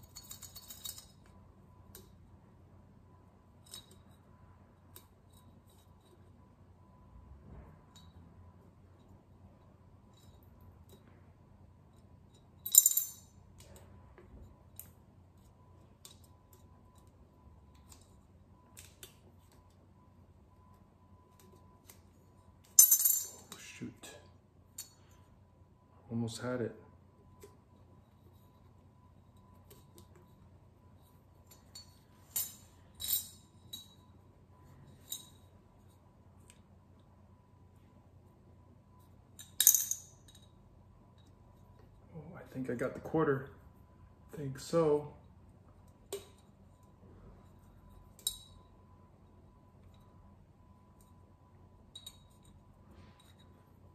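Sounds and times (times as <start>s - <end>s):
coins rattling in coin bank: 0.0s - 1.2s, 12.3s - 13.4s, 22.7s - 23.6s, 39.4s - 40.5s
coins clinking in coin bank: 0.0s - 1.4s, 11.9s - 13.8s, 22.6s - 24.2s, 31.5s - 34.1s, 39.4s - 40.6s
metallic jingle: 0.0s - 1.4s, 11.9s - 13.4s, 22.8s - 23.6s, 31.5s - 34.1s.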